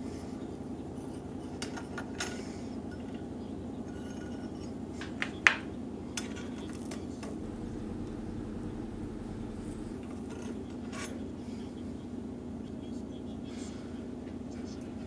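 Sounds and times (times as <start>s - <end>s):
steady low hum: 7.4s - 10.1s.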